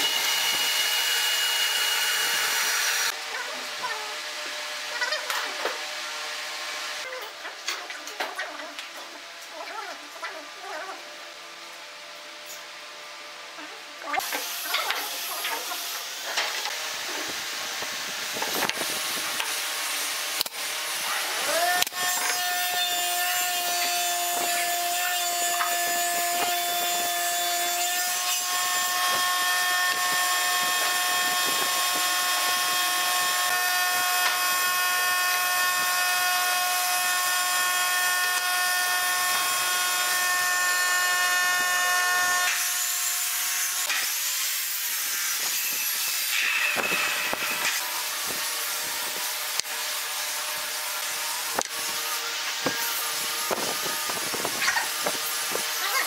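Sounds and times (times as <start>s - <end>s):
power tool motor whining: 0.0s - 3.2s, 20.4s - 44.1s.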